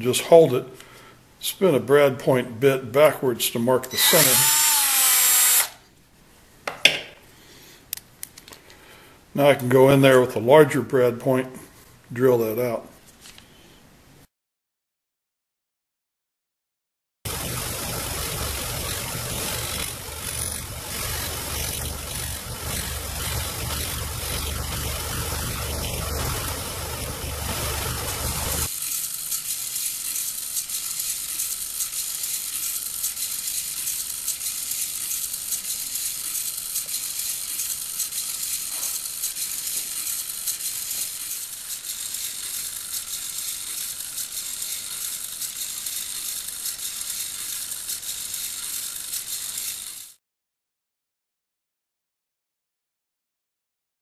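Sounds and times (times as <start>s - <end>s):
servo motors buzzing and ticking: 4.0s - 5.7s, 17.3s - 50.2s
electric disc sander: 4.0s - 5.8s, 17.3s - 50.2s.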